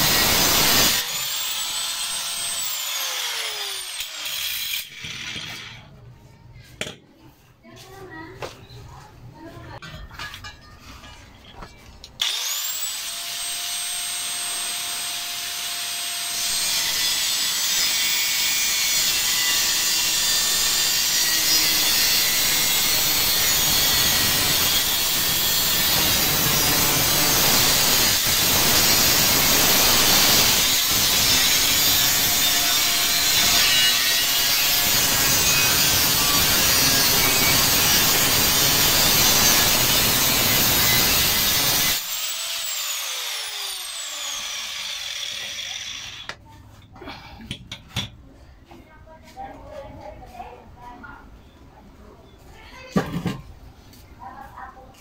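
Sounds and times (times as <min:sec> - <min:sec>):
angle grinder whine: 0:00.0 - 0:05.4, 0:12.2 - 0:46.4
grinding disc cutting sheet metal: 0:00.0 - 0:05.8, 0:12.2 - 0:46.4.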